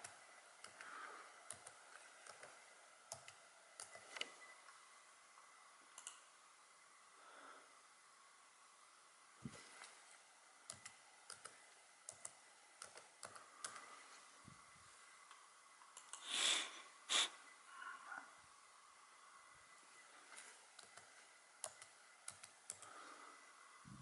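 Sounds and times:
keyboard keys clicking: 0:10.7 - 0:13.9, 0:20.8 - 0:22.9.

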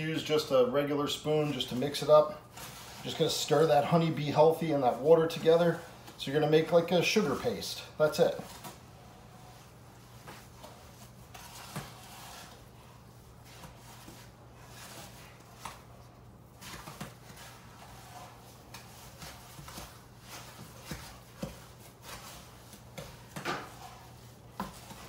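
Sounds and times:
spoon stirring thick paste: 0:01.1 - 0:25.0.

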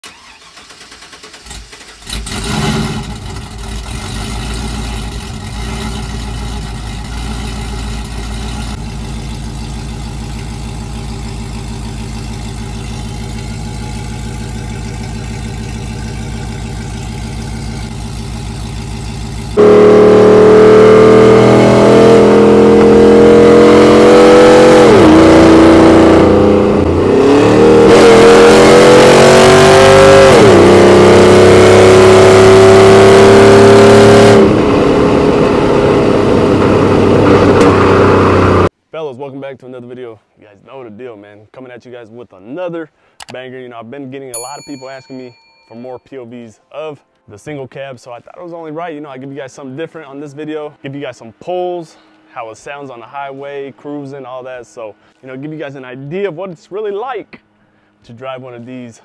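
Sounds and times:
engine starting and revving: 0:00.0 - 0:38.7
engine drone at highway speed: 0:00.6 - 0:38.7, 0:50.0 - 0:59.0
engine idling: 0:03.0 - 0:19.8.

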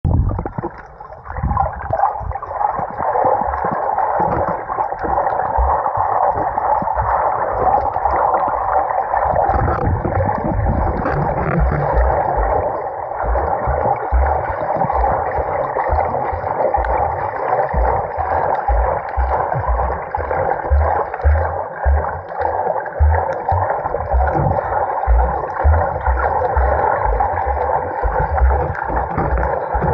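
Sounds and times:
underwater rushing seawater: 0:00.1 - 0:29.9
low thuds: 0:09.5 - 0:29.9.

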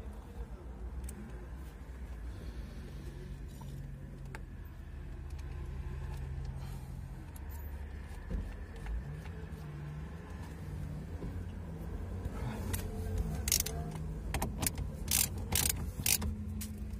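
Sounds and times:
car engine hum inside cabin: 0:00.0 - 0:16.9
steering wheel handling clicks: 0:12.2 - 0:16.9.

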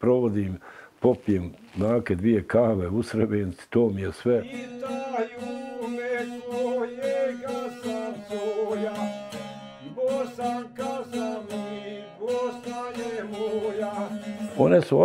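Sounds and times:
plucked string instrument music: 0:04.4 - 0:15.0.

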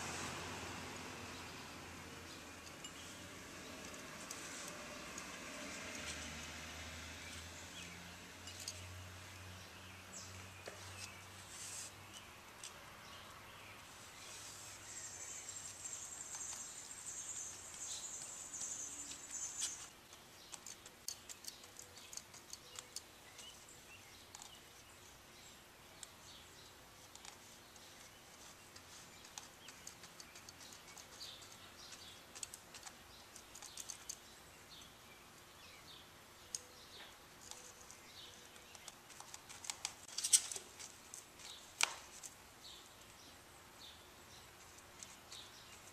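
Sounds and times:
brush scratching and tapping: 0:02.3 - 0:06.6, 0:10.6 - 0:12.8, 0:13.8 - 0:23.7, 0:26.9 - 0:34.2.

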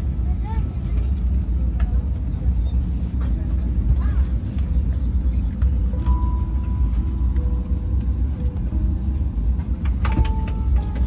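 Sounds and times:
airplane cabin rumble: 0:00.0 - 0:11.0.

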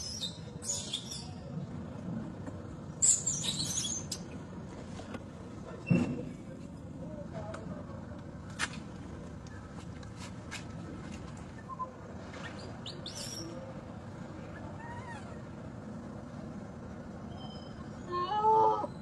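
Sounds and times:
outdoor background noise: 0:00.0 - 0:19.0
faint high bird chirps: 0:17.3 - 0:18.3.

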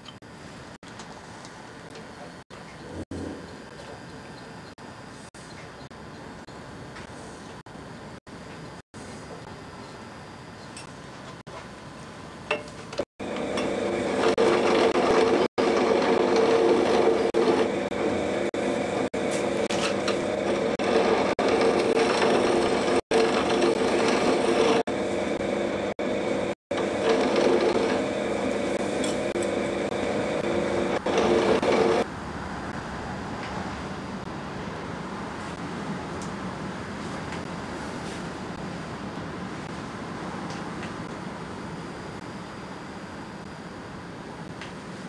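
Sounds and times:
machine tool motor humming: 0:12.5 - 0:32.1.

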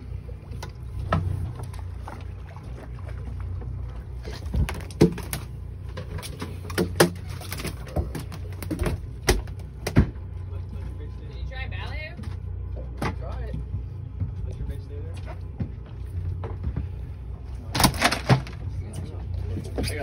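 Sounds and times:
low rumble: 0:00.0 - 0:20.0
fish slapping on boat deck: 0:04.2 - 0:10.2, 0:17.6 - 0:18.7.

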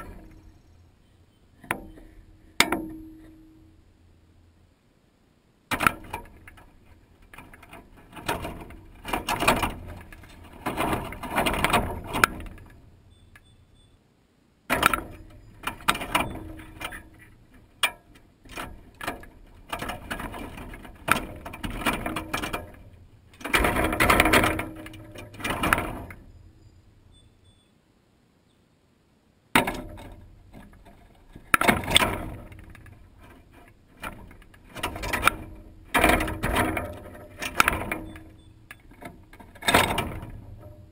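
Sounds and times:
wire-mesh feeder rattling: 0:00.0 - 0:00.5, 0:05.7 - 0:13.0, 0:14.7 - 0:26.4, 0:29.6 - 0:40.9.

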